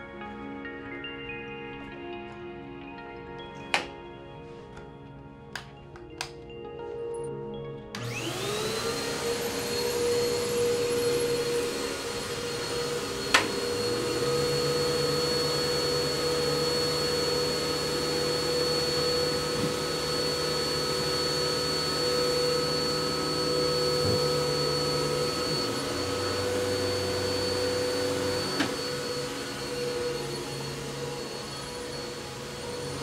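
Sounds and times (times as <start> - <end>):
vacuum cleaner running on carpet: 8.0 - 33.0.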